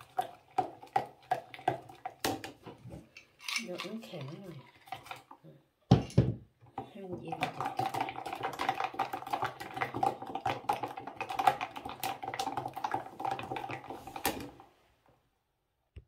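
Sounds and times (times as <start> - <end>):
metal spoon stirring in beaker: 3.0 - 5.4, 6.8 - 14.4.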